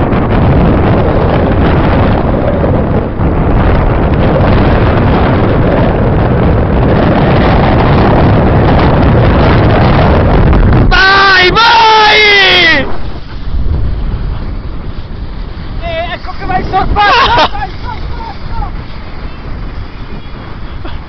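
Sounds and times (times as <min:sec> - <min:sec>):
wind buffeting microphone: 0:00.0 - 0:21.0
skis sliding over packed snow: 0:12.9 - 0:21.0.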